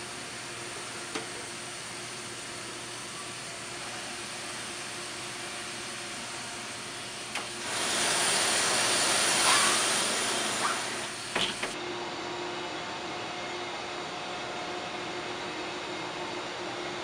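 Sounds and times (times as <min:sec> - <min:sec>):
loud rushing hiss: 0:07.6 - 0:11.8.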